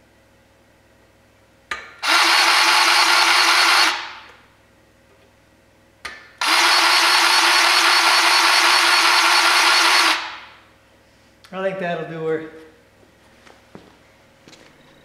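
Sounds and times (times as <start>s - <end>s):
grease gun motor running: 2.0s - 4.1s, 6.4s - 10.4s.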